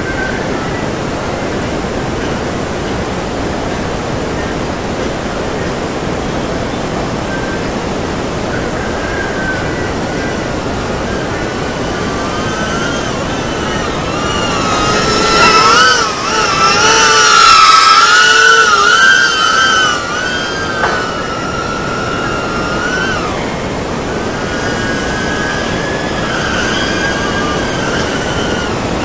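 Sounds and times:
drone motors whining: 0:00.0 - 0:29.0.

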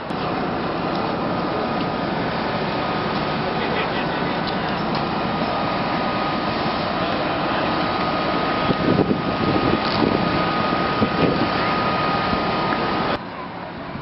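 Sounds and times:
engine drone with high whine: 0:00.0 - 0:14.0.

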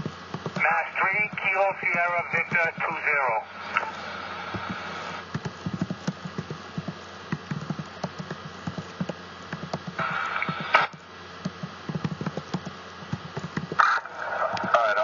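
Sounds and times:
radio scanner static hiss: 0:00.0 - 0:15.0
sharp low clicks and pops: 0:04.6 - 0:13.9.

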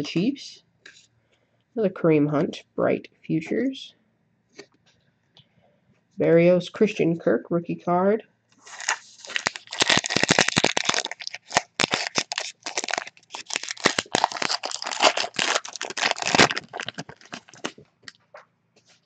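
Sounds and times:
foil wrapper tearing and crinkling: 0:08.6 - 0:18.2.

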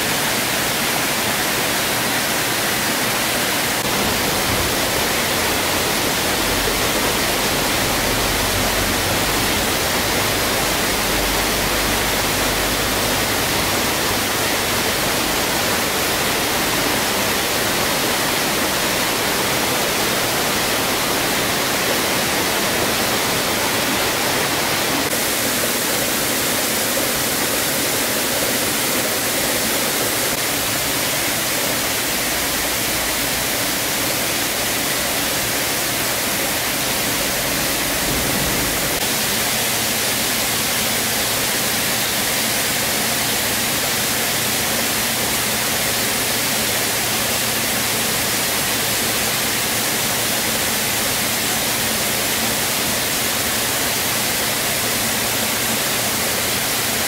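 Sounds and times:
steady rushing hiss: 0:00.0 - 0:57.0.

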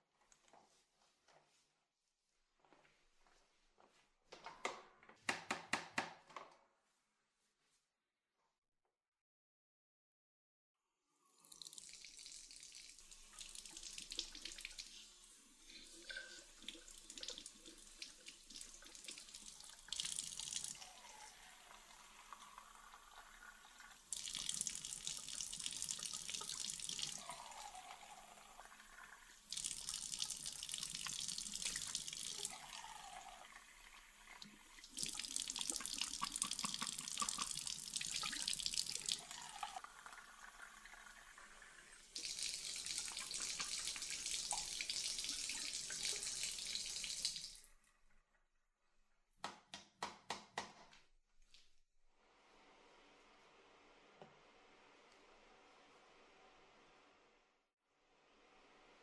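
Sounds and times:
tap water splashing into sink: 0:28.8 - 0:47.7.

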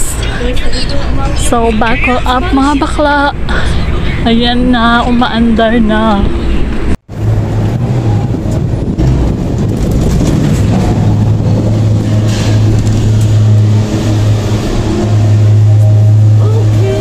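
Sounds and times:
gondola cabin humming and rattling: 0:00.0 - 0:17.0.

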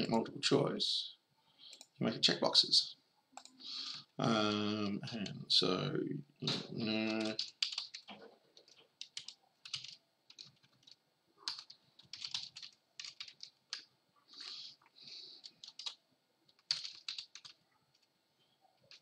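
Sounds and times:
typing on computer keyboard: 0:06.9 - 0:14.5, 0:15.4 - 0:18.1, 0:18.8 - 0:19.0.

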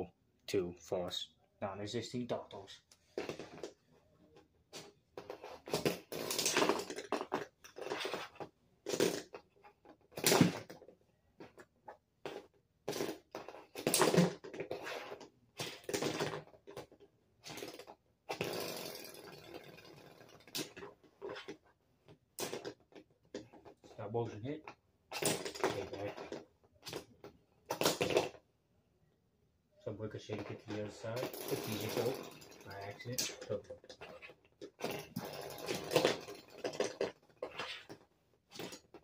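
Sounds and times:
plastic spinning tops clattering: 0:05.6 - 0:10.6, 0:13.4 - 0:21.6, 0:30.6 - 0:39.0
spinning top whirring: 0:31.1 - 0:33.2.

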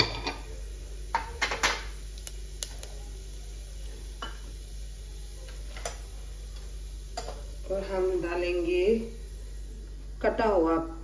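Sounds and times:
seeds sizzling in hot oil: 0:00.0 - 0:11.0
sharp crackles and pops: 0:01.4 - 0:03.0.

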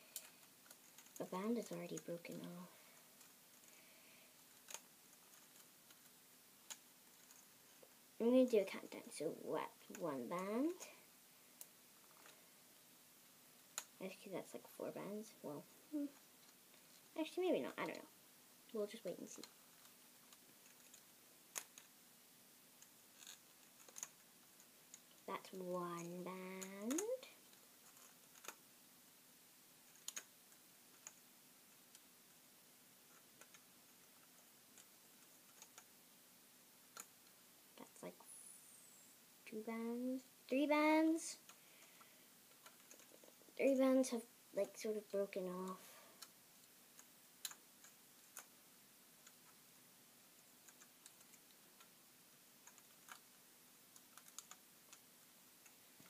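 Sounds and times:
small plastic clicks and ticks: 0:00.0 - 0:03.8, 0:04.4 - 0:07.9, 0:13.6 - 0:14.0, 0:18.7 - 0:22.0, 0:22.8 - 0:28.6, 0:29.9 - 0:32.4, 0:33.0 - 0:36.0, 0:36.9 - 0:37.4, 0:41.4 - 0:43.5, 0:44.6 - 0:48.6, 0:50.4 - 0:52.0, 0:52.6 - 0:56.0.

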